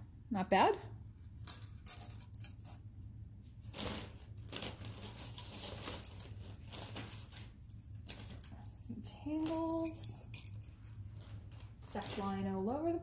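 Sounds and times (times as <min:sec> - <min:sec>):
metal jewelry clinking: 0:01.1 - 0:02.8, 0:05.0 - 0:12.3
bags rustling: 0:03.5 - 0:12.7.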